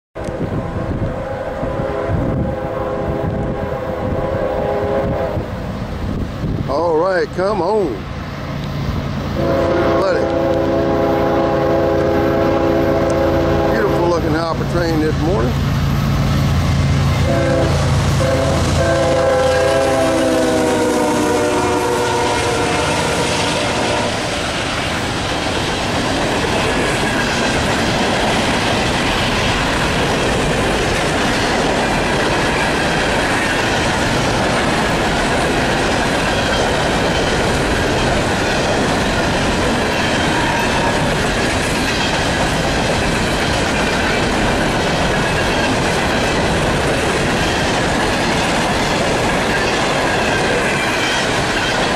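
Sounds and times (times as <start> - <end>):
train horn blast: 0.2 - 5.5, 9.4 - 14.5, 17.0 - 24.5
train wheels clattering over rails: 8.5 - 51.9.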